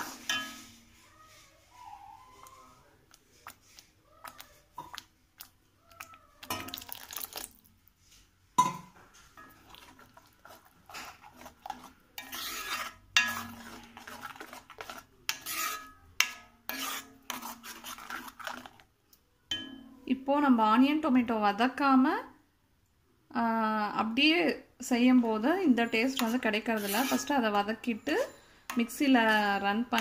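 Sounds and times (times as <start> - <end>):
metal spoon scraping a pan: 0.0 - 1.7, 6.4 - 7.5, 8.6 - 18.9, 25.8 - 30.0.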